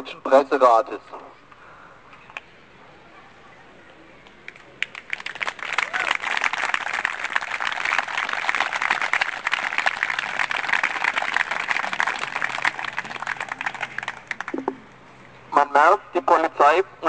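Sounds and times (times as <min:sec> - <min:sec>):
crowd applauding: 0:04.8 - 0:14.9.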